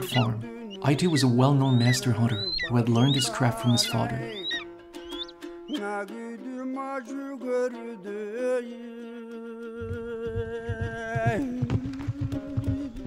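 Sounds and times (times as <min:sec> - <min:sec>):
low fast rhythmic pulse: 0:00.0 - 0:05.7, 0:09.8 - 0:13.0
voice-like melody of held notes: 0:00.0 - 0:06.0.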